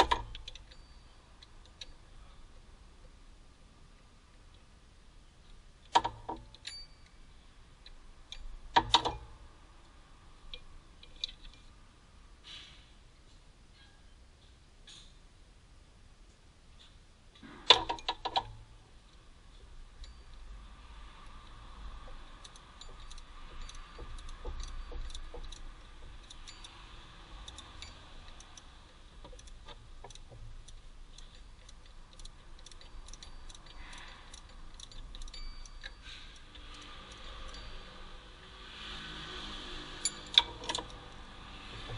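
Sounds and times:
light clicks of hand tools: 21.1s - 37.8s.

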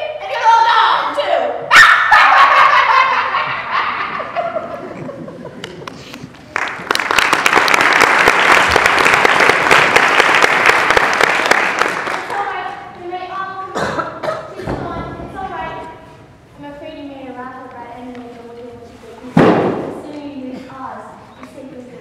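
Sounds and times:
audience laughing: 2.1s - 6.3s
audience applause: 5.6s - 12.4s.

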